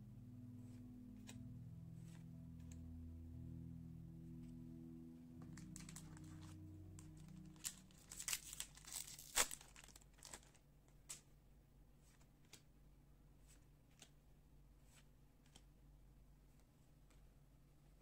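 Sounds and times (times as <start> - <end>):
plastic wrapper crinkling and tearing: 5.4 - 11.2.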